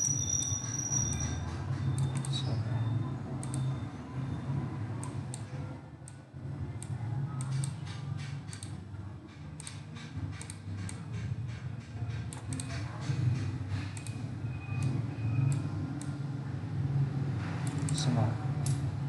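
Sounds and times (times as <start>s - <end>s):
mouse and keyboard clicking: 6.8s - 8.8s, 9.6s - 11.1s, 12.2s - 13.2s, 13.9s - 14.2s, 17.6s - 18.8s.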